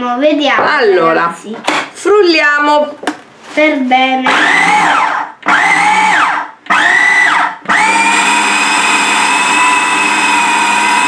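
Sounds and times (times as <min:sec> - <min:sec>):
food processor motor whirring: 0:04.3 - 0:11.0.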